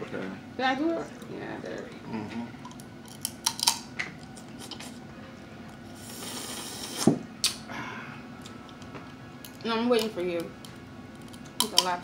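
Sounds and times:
sucking slurp: 6.0 - 7.1
lip smack: 6.9 - 7.6.

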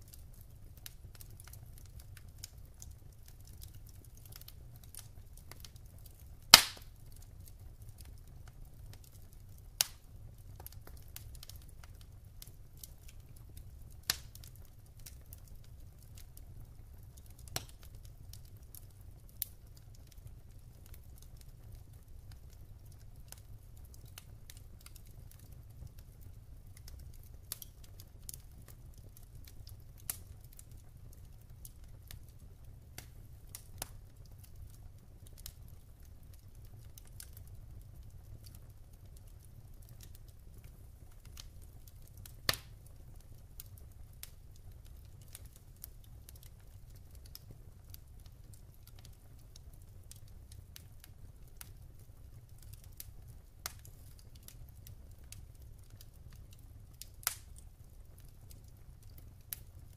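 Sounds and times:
logs crackling in a fireplace: 0.0 - 59.9
low rumble of fire: 0.0 - 59.9
sharp pops of burning wood: 6.5 - 7.0, 9.8 - 10.0, 13.6 - 15.2, 41.2 - 42.8, 57.0 - 57.7.

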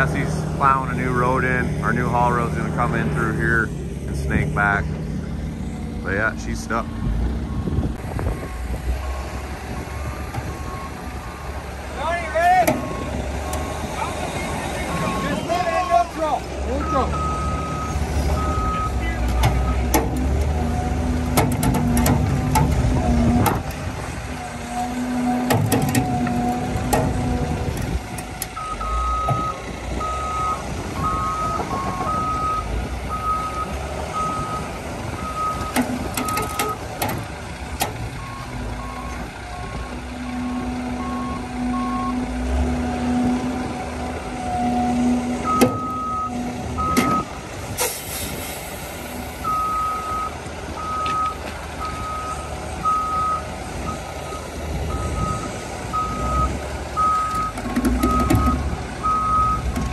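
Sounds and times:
diesel engines rumbling: 0.0 - 59.9
backup alarms beeping: 7.5 - 15.8, 16.7 - 20.2, 28.5 - 36.8, 44.4 - 47.3, 49.4 - 59.9.

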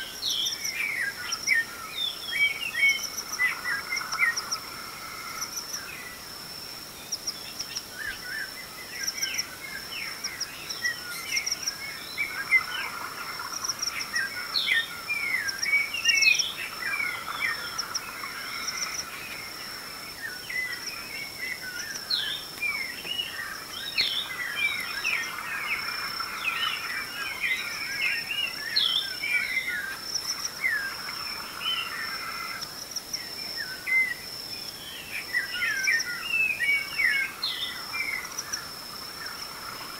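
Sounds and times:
high-pitched insect trill: 0.0 - 39.9
birds chirping and whistling: 20.2 - 25.8.

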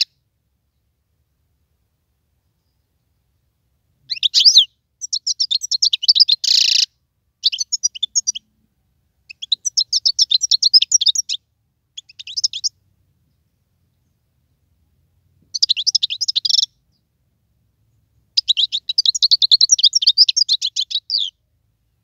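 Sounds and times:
bird twittering song: 4.1 - 8.5, 9.3 - 14.6, 15.4 - 17.1, 17.9 - 21.4.

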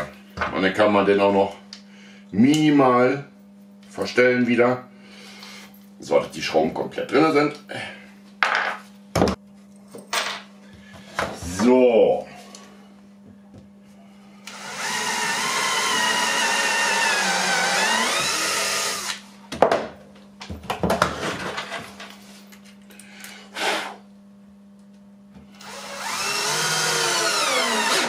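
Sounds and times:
cordless drill boring into wood: 14.5 - 19.2, 25.6 - 28.0
drill driving a wood screw: 14.5 - 19.2, 25.6 - 28.0.

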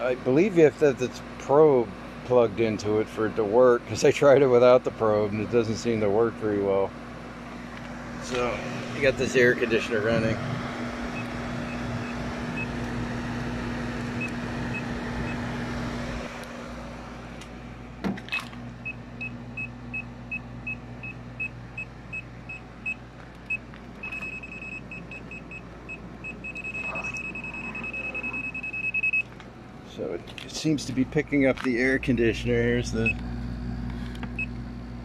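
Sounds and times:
voltage detector beeping: 18.8 - 29.4.

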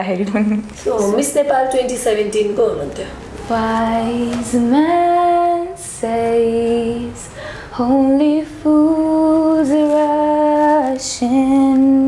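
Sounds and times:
woman singing long held notes: 3.4 - 12.0
woman breathing: 7.2 - 7.8.

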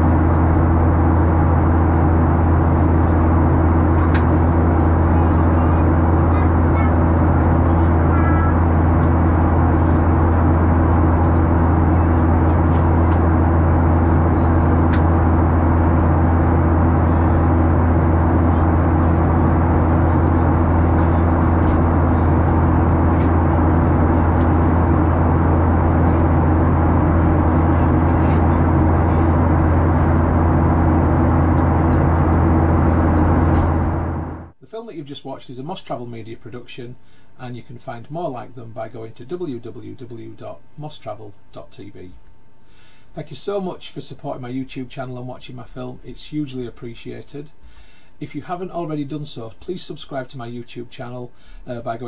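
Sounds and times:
airplane cabin engine drone: 0.0 - 34.6.

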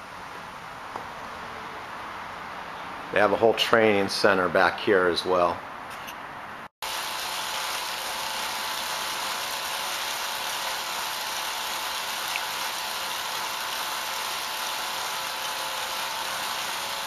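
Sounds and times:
bike wheel whirring on trainer: 6.8 - 17.0.

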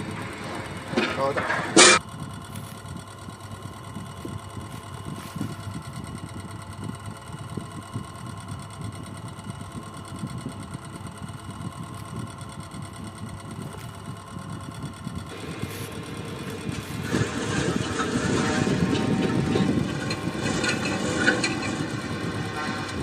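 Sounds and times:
machine rumbling with hum: 0.0 - 23.0.

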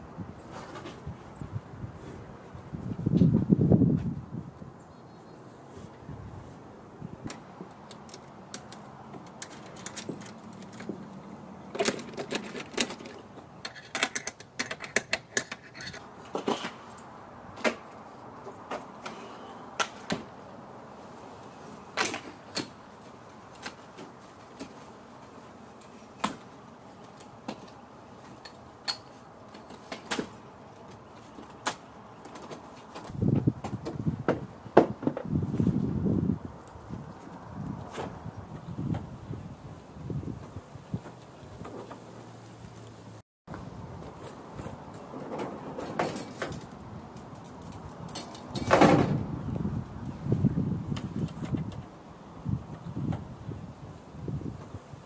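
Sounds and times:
tent hardware clicking and clacking: 7.2 - 19.2, 19.8 - 20.4, 22.0 - 24.9, 44.2 - 49.2.

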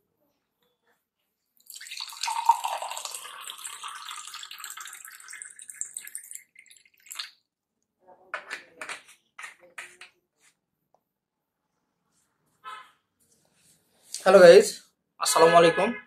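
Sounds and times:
water pouring into a glass: 1.6 - 7.4.

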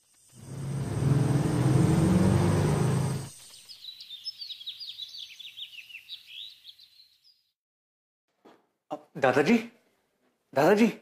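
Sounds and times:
loud musical swell: 0.4 - 3.3
birds twittering: 0.4 - 7.5.

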